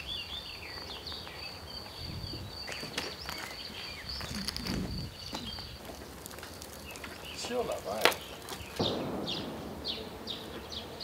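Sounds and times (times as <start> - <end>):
light clicks and rustles: 2.7 - 8.9.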